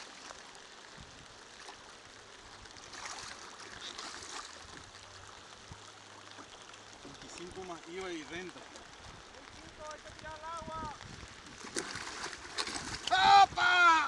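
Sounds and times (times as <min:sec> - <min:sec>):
fish thrashing water splashing: 0:02.8 - 0:05.0, 0:11.4 - 0:13.4.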